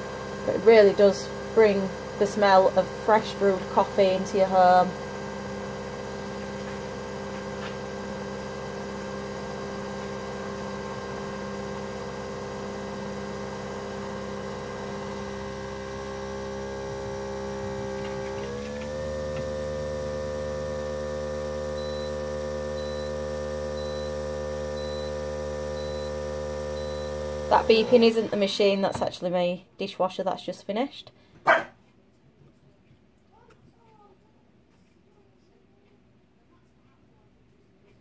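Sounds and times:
coffee machine motor hum: 0:00.0 - 0:28.9.

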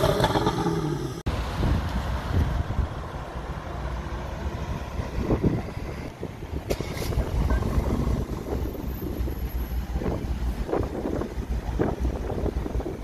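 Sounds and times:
wind buffeting microphone: 0:04.6 - 0:13.0.

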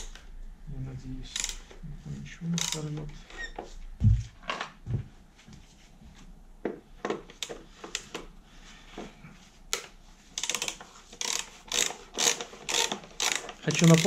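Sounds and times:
ratchet wrench clicking: 0:01.3 - 0:01.7, 0:02.6 - 0:02.9, 0:10.4 - 0:14.0.

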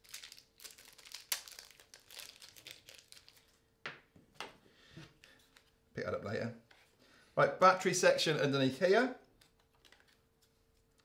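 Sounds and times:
plastic wrapper crinkling: 0:00.0 - 0:03.7.

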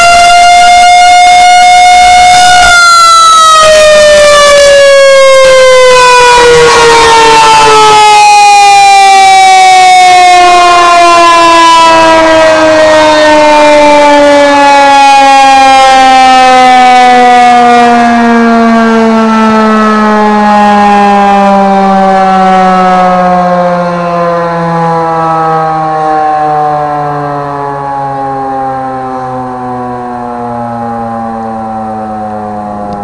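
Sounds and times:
warning siren winding down: 0:00.0 - 0:33.0.

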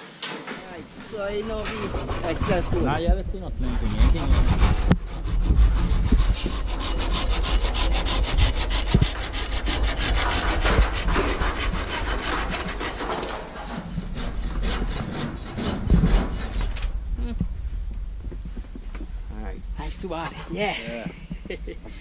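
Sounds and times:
hand saw cutting wood: 0:01.0 - 0:16.8.

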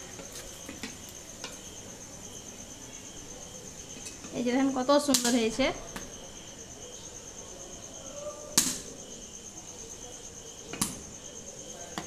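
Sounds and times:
cricket trilling: 0:00.0 - 0:12.0.

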